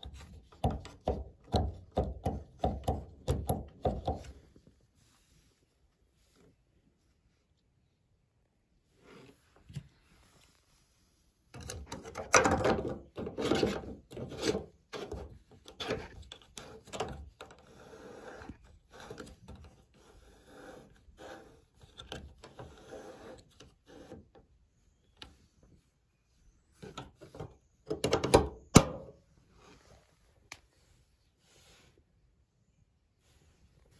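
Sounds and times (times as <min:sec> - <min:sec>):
plastic scraping and rubbing: 0:11.5 - 0:24.5.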